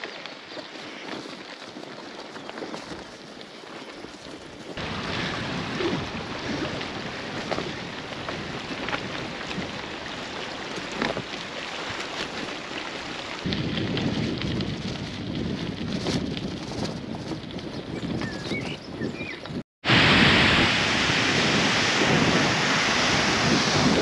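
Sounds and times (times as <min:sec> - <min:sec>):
deep rumble: 0:04.8 - 0:09.7, 0:19.9 - 0:24.0
heavy rain falling: 0:04.8 - 0:15.0, 0:19.9 - 0:24.0.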